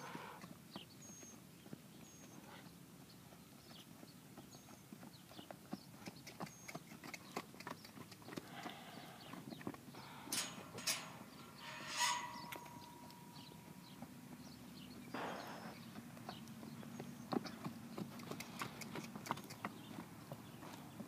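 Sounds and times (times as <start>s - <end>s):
hooves on soft dirt: 0.4s - 21.0s.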